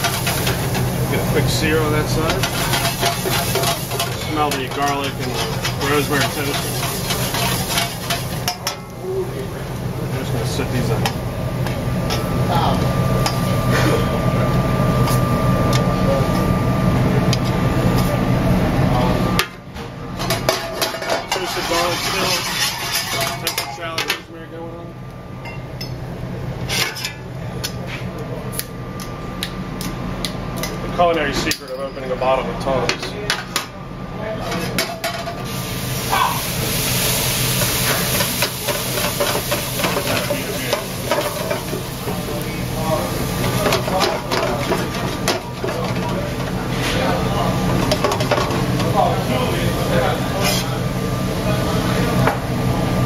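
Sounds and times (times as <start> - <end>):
kitchen ventilation drone: 0.0 - 53.0
steady low hum: 0.0 - 53.0
butter and garlic sizzling in a pan: 2.3 - 8.6, 35.5 - 46.6.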